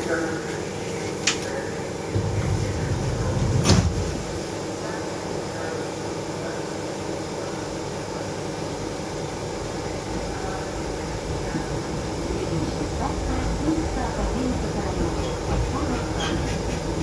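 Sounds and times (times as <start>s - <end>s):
monorail car hum and whir: 0.0s - 17.0s.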